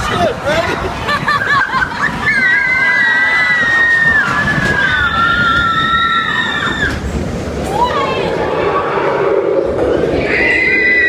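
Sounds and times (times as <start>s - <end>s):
roller coaster rumble: 0.0s - 11.0s
high-pitched squeal: 7.8s - 11.0s.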